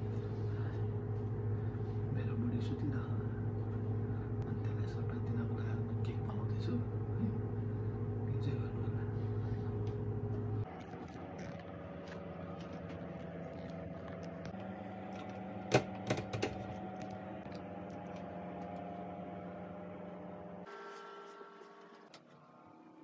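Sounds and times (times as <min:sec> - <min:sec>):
steady hum: 0:00.0 - 0:23.0.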